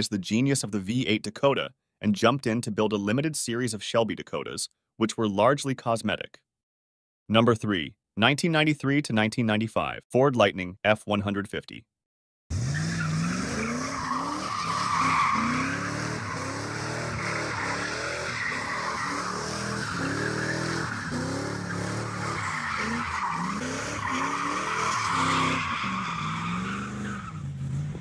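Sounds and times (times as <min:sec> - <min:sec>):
engine revving: 0:12.5 - 0:28.0
tyres squealing: 0:12.7 - 0:27.4.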